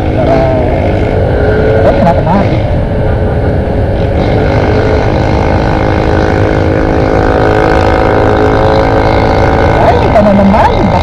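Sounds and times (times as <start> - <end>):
scooter engine running: 0.0 - 11.0
wind rumbling on microphone: 0.0 - 11.0.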